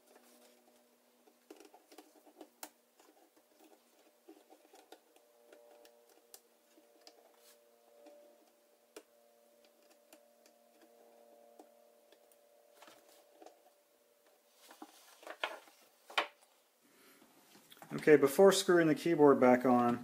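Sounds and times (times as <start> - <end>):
fingers tapping laptop parts: 0.0 - 13.8.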